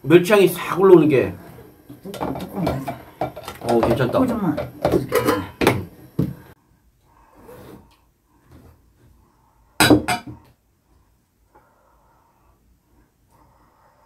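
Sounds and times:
dishes clattering: 2.0 - 6.3, 9.8 - 10.4.

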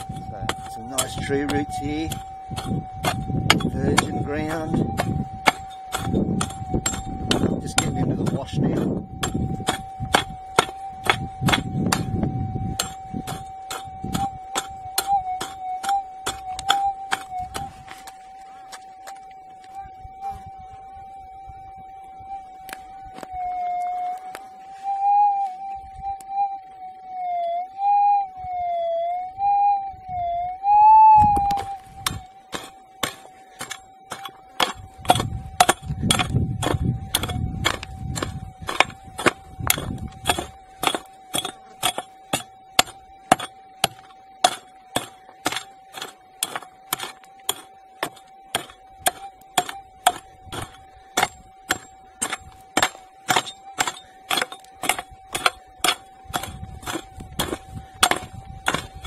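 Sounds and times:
pick striking soil and rock: 0.0 - 19.2, 31.4 - 59.0
metal detector tone: 0.0 - 59.0.

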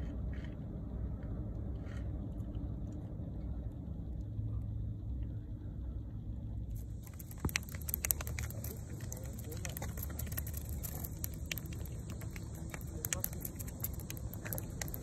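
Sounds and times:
low outdoor rumble: 0.0 - 15.0
fish flapping on concrete: 6.8 - 15.0.

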